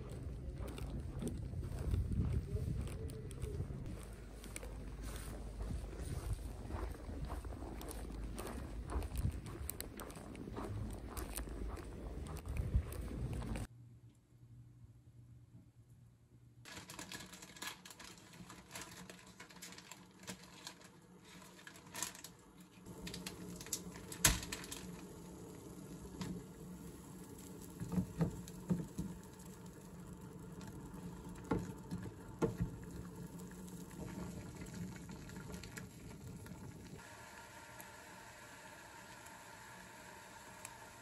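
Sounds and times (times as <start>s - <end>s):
water fizzing and boiling in a pot: 16.7s - 41.0s.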